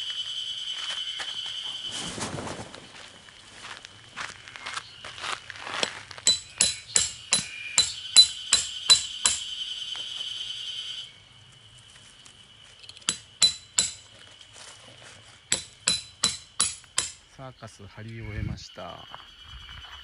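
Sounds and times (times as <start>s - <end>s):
hammer striking metal tent pegs: 13.0s - 14.1s, 15.5s - 17.2s.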